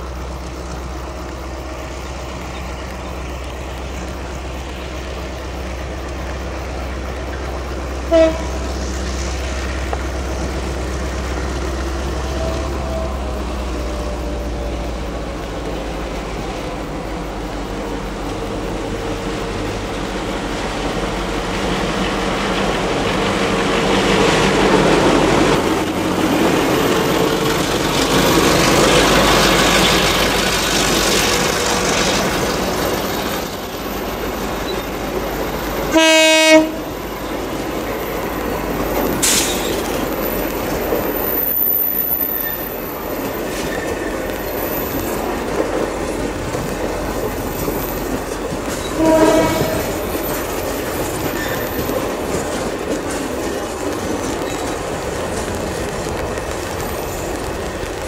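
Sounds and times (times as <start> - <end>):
locomotive running past: 0.0 - 58.0
wheels clacking over rail joints: 0.0 - 58.0
locomotive horn blast: 8.1 - 8.6, 35.9 - 36.9, 48.9 - 50.1.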